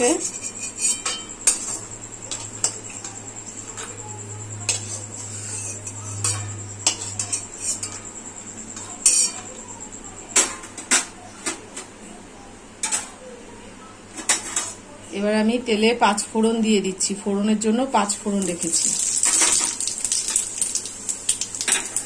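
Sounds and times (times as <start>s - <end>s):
metal spatula scraping metal pan: 0.0s - 1.9s, 4.7s - 8.0s
steady low hum: 0.0s - 9.0s.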